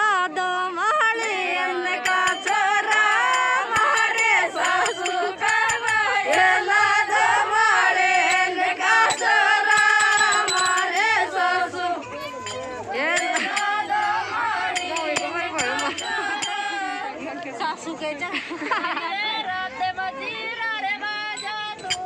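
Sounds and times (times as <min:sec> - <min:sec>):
women singing unaccompanied: 0:00.0 - 0:22.0
hand claps: 0:02.0 - 0:06.8.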